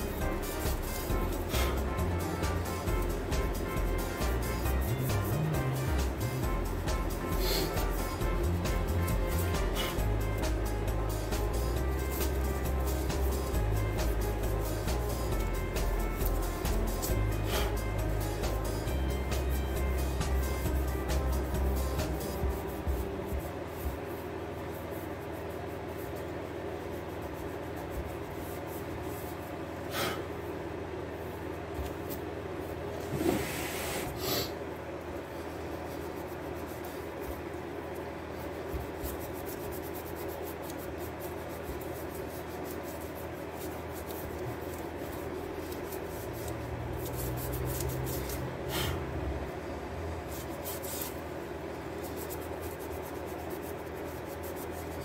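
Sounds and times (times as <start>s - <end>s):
hand sanding metal wheel: 0.0s - 30.0s, 35.6s - 49.2s, 50.2s - 55.0s
short knocks or scrapes: 33.0s - 34.2s.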